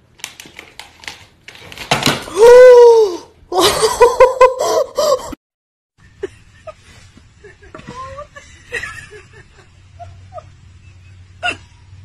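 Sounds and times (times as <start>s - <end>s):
person laughing hard: 3.5s - 5.4s.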